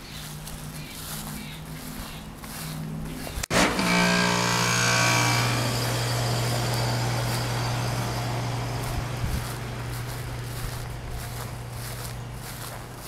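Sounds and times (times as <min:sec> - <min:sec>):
lawn mower engine running: 0:03.4 - 0:13.0.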